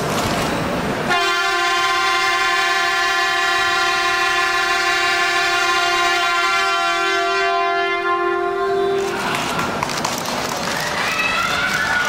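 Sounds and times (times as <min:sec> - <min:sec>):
train horn blast: 0:01.1 - 0:09.8.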